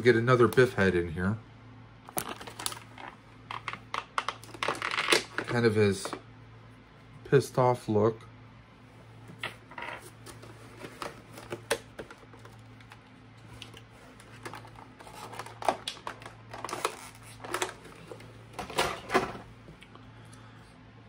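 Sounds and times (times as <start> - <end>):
packaging rustling: 2.1 - 6.2, 10.1 - 18.8.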